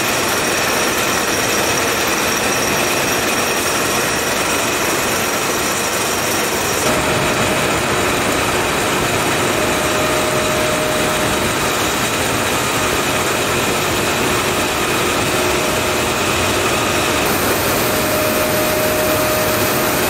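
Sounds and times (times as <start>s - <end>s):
production line machinery: 0.0s - 20.0s
faint steady tones: 17.2s - 20.0s.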